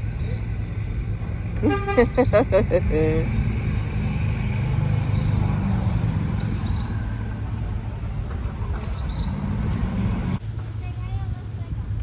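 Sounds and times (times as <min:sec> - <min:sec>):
bird chirping: 0:00.0 - 0:01.3, 0:04.7 - 0:07.2, 0:08.4 - 0:09.5.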